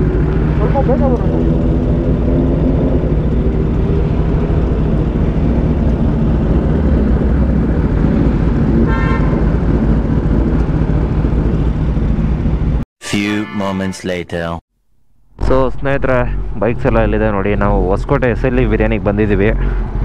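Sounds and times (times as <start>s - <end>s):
motorcycle engine running: 0.0s - 12.8s
road noise: 0.0s - 12.8s, 15.6s - 20.0s
vehicle horn beep: 8.8s - 9.5s.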